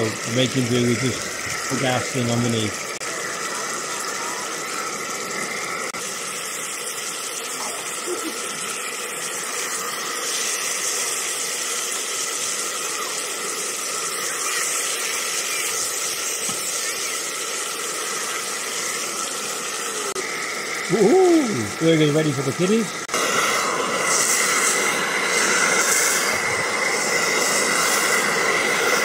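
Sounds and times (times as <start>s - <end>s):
meat sizzling in a pan: 0.0s - 29.0s.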